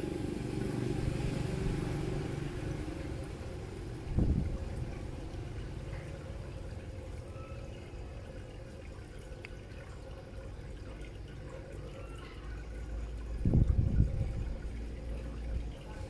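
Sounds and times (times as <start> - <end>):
steady low hum: 12.6 - 16.0.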